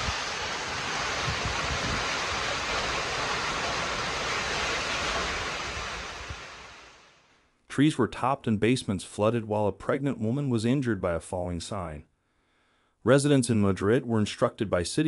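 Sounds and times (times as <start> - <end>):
wind buffeting microphone: 0.0 - 6.6
heavy rain pouring: 0.0 - 7.3.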